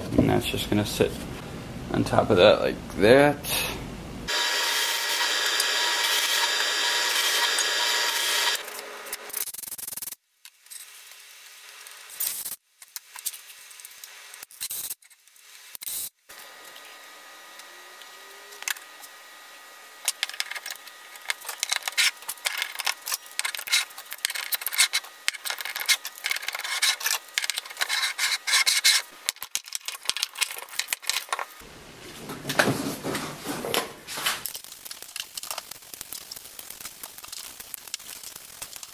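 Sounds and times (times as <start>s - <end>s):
drill press motor running: 4.3s - 9.3s
rubbing and scraping on plywood: 24.6s - 29.1s.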